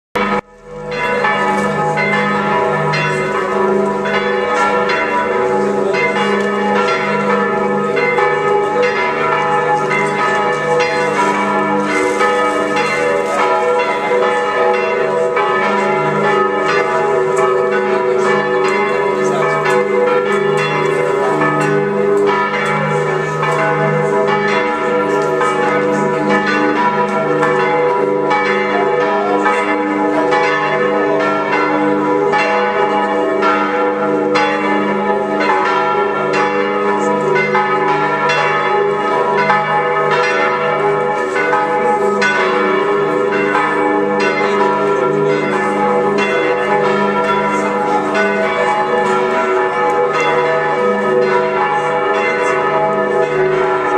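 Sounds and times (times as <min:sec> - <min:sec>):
church bells pealing: 0:00.2 - 0:53.9.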